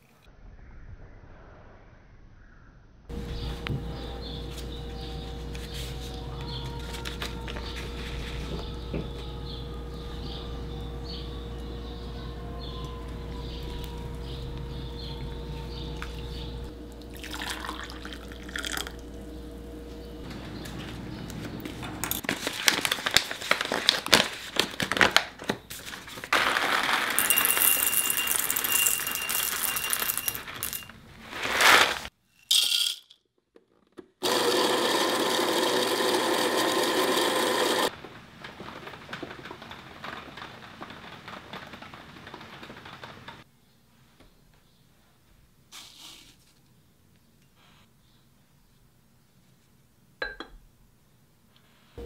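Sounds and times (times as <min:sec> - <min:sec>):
coffee beans clattering: 0:26.2 - 0:33.2
electric burr grinder running: 0:34.2 - 0:37.9.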